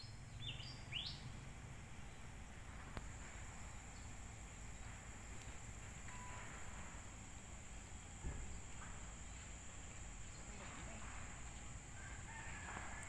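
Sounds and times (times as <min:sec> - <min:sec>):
rising bird chirp: 0:00.0 - 0:01.4
high insect drone: 0:00.0 - 0:13.0.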